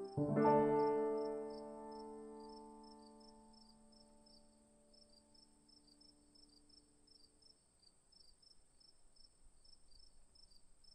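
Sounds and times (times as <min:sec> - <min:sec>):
background music: 0:00.0 - 0:06.6
insect chorus chirping: 0:00.8 - 0:10.9.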